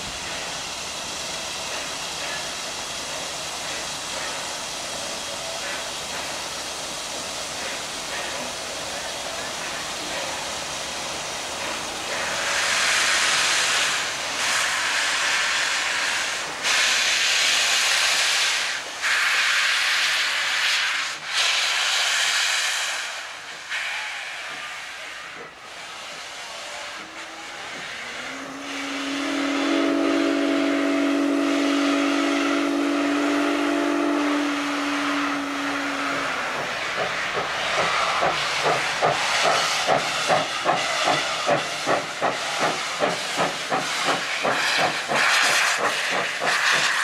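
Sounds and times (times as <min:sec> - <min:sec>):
steam locomotive hissing steam: 0:00.0 - 0:47.0
steam whistle blast: 0:26.8 - 0:36.5.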